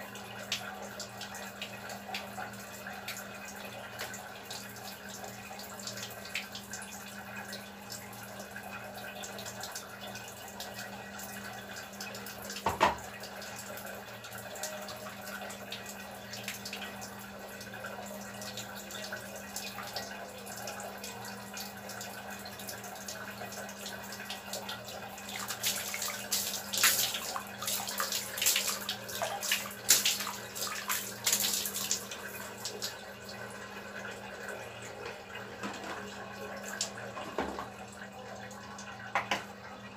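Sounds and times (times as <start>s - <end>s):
water splashing and dripping: 24.2s - 33.0s.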